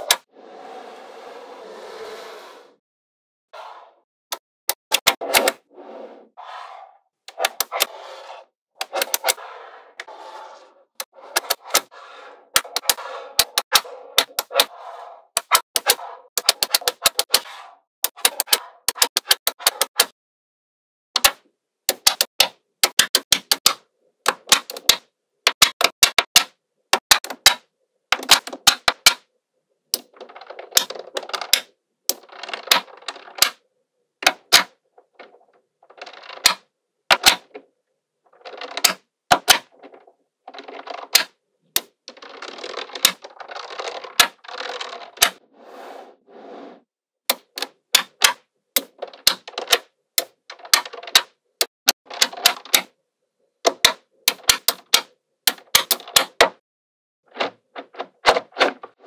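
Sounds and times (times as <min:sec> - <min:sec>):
magnetic balls snapping together: 0:04.3 - 0:05.6, 0:08.8 - 0:09.4, 0:12.6 - 0:14.7, 0:15.4 - 0:20.1, 0:21.2 - 0:29.2, 0:53.7 - 0:56.5
magnetic balls rattling: 0:42.0 - 0:45.4.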